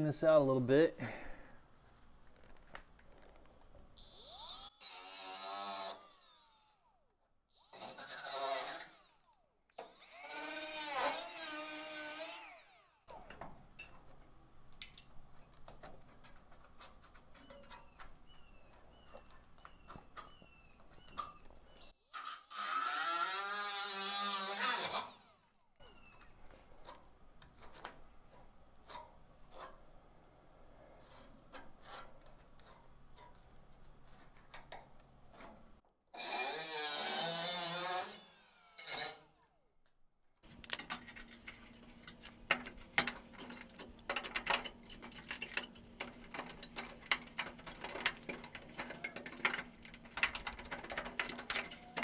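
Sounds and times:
die grinder grinding metal: 4.0s - 13.3s, 21.8s - 25.3s, 36.2s - 39.3s
pliers crunching rusted metal: 40.5s - 52.0s.

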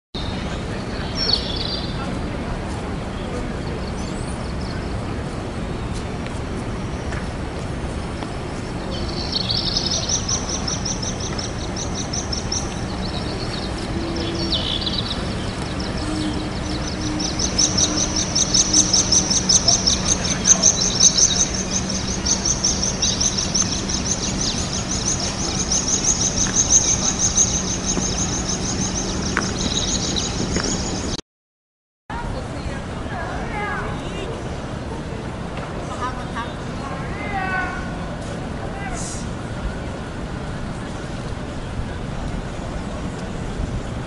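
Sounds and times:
birds chirping in trills: 0.2s - 2.2s, 8.0s - 31.2s
low city hum: 0.2s - 31.2s, 32.1s - 44.0s.

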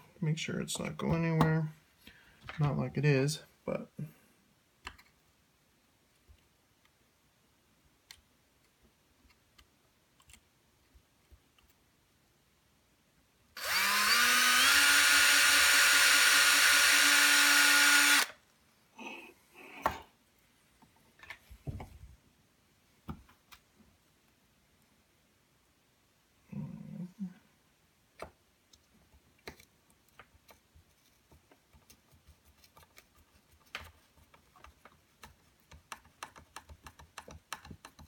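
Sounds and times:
electric drill spinning: 13.6s - 18.4s.

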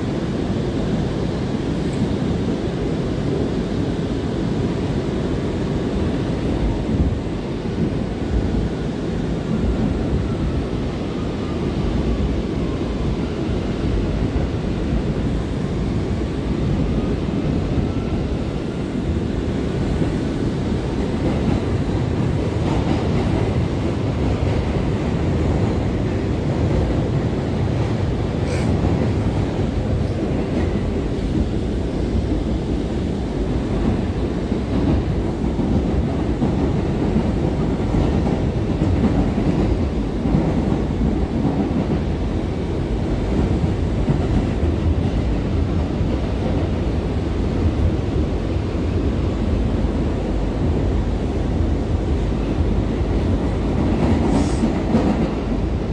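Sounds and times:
subway car rumbling on rails: 0.0s - 55.9s.

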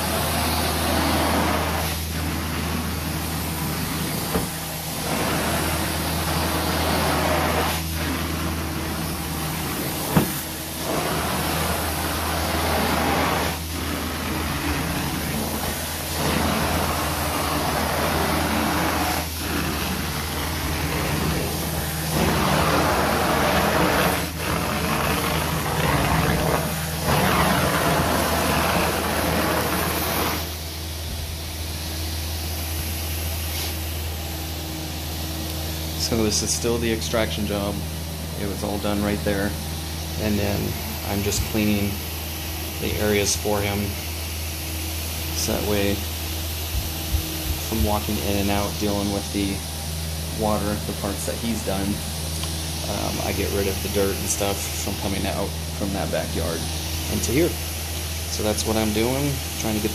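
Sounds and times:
rush of sucked air and water: 0.0s - 30.6s
vacuum humming: 0.0s - 59.9s.

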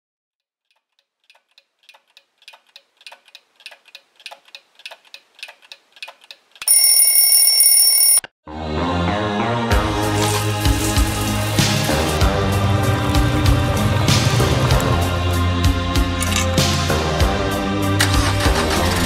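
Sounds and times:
alarm clock ticking: 6.6s - 8.2s
alarm clock ringing: 6.7s - 8.2s.

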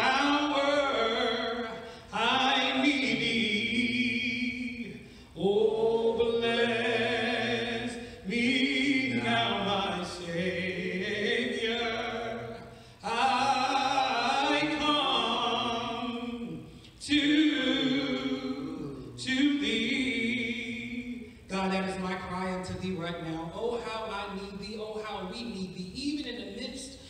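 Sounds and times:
man singing a hymn unaccompanied: 0.0s - 18.5s.

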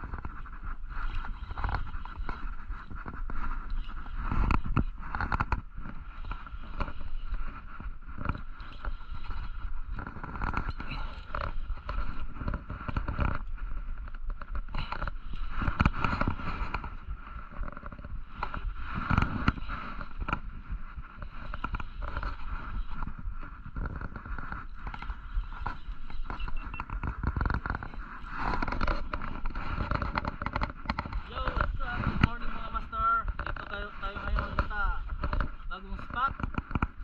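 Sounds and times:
wind rumbling on microphone: 0.0s - 37.0s
steady high hum: 18.2s - 36.4s
small clicks and knocks: 23.7s - 31.3s, 36.1s - 37.0s.

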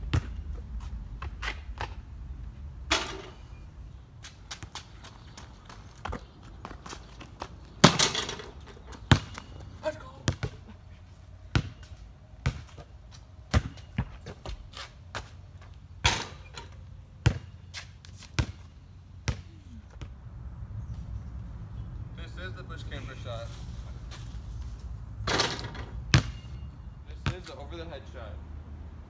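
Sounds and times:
basketball bouncing on concrete: 0.1s - 0.4s, 4.5s - 10.7s, 11.5s - 15.4s, 17.2s - 17.7s, 18.3s - 20.2s, 25.3s - 26.6s.

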